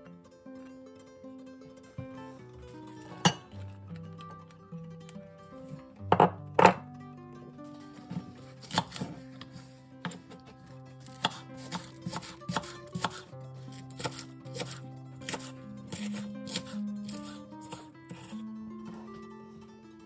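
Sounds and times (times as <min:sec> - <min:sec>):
knife chopping on wooden board: 0:08.6 - 0:09.2, 0:10.0 - 0:10.4, 0:11.0 - 0:13.2, 0:13.8 - 0:18.3.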